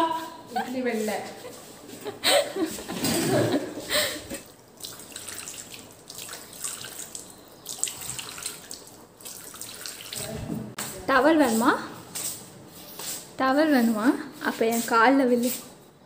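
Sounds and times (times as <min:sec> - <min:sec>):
tap water running into basin: 0:04.4 - 0:10.7.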